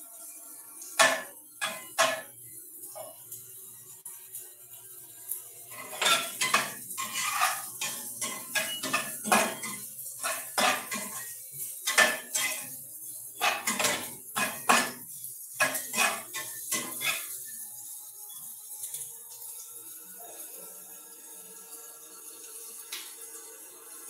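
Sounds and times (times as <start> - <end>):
metal spatula scraping frying pan: 1.0 - 2.3, 5.7 - 12.8, 13.4 - 17.5.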